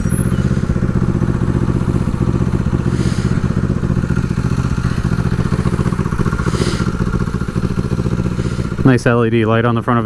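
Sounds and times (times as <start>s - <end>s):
motorcycle engine idling: 0.0s - 10.0s.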